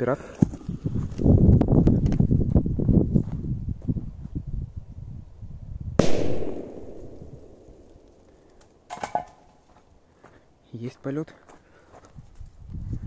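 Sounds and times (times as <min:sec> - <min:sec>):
firecracker bang: 0:06.0 - 0:07.9.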